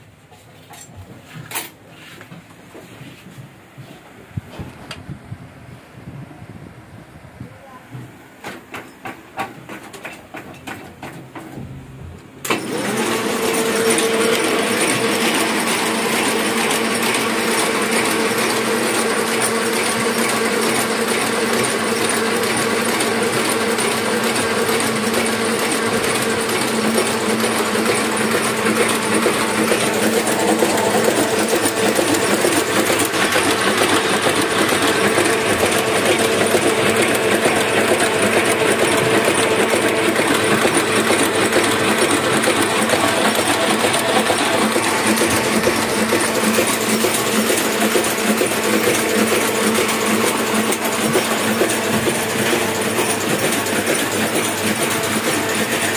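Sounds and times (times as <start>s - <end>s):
printing press mechanical clatter: 8.1s - 55.9s
printing press clicking: 8.4s - 11.6s, 12.2s - 55.9s
steady machine hum: 11.6s - 55.9s.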